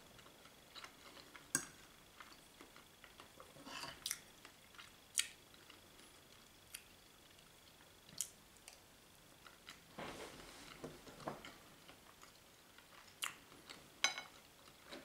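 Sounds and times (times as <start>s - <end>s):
cutlery clinking on plate: 14.0s - 14.4s.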